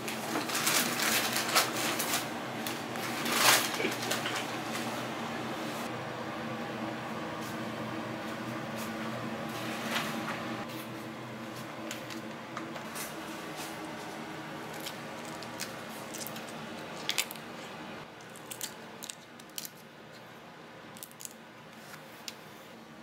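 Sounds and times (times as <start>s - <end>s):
prawn shells crackling: 0.0s - 4.7s.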